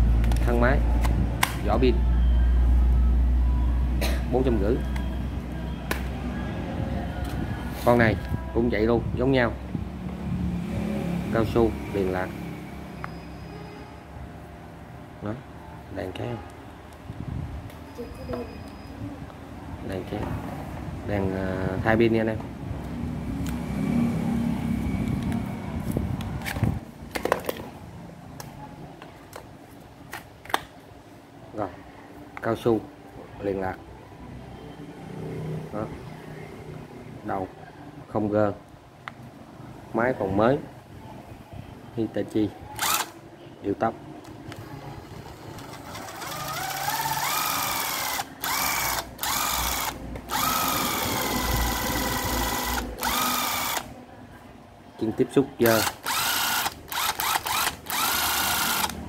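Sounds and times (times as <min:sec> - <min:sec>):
cordless drill motor running: 0:42.8 - 0:43.1, 0:44.6 - 0:53.9, 0:55.6 - 0:59.0.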